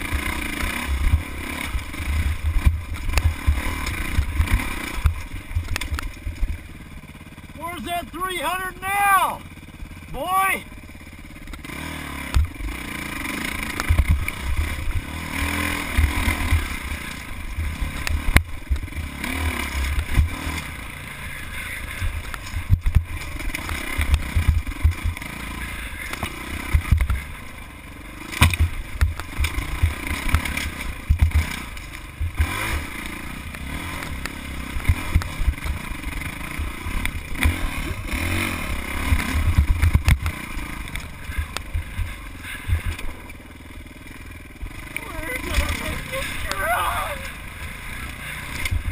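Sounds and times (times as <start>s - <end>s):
dirt bike engine revving: 0.0s - 48.9s
sharp chassis knocks: 28.3s - 32.4s.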